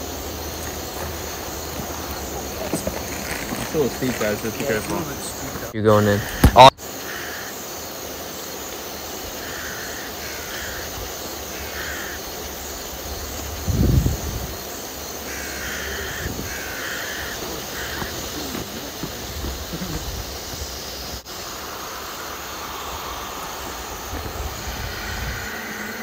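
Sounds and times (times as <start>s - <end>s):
scuffing and rustling: 0.5s - 5.7s, 17.2s - 21.2s
crows cawing: 4.7s - 7.6s, 9.4s - 12.5s, 15.2s - 20.6s.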